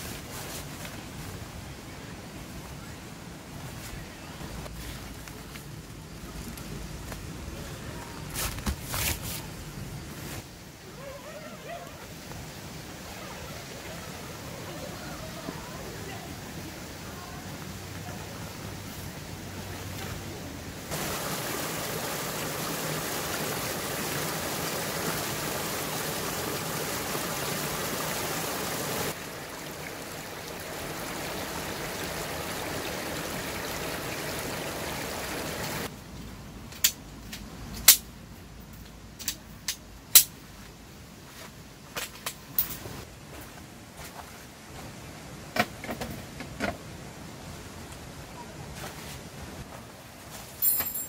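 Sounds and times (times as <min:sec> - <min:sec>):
stream water rushing: 0:11.8 - 0:35.9.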